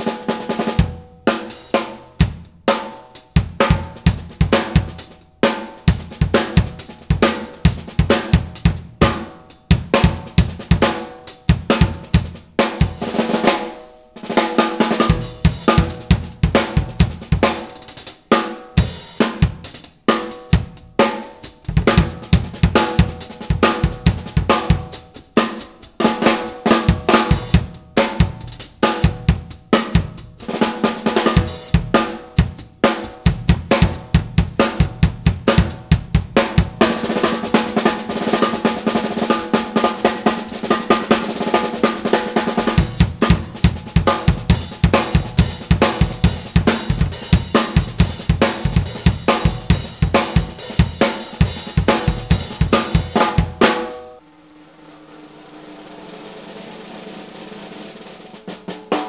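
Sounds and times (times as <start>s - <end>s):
snare drum: 0.0s - 59.0s
bass drum: 21.7s - 25.0s, 26.8s - 30.5s, 31.4s - 37.0s, 42.6s - 53.9s
cymbals ringing: 53.1s - 58.5s.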